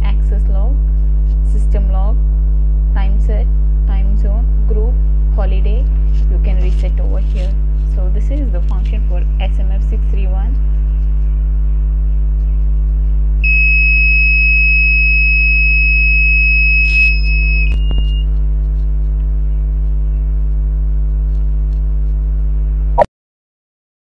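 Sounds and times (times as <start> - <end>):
electrical hum: 0.0 - 23.1
high-pitched electronic beep: 13.4 - 18.3.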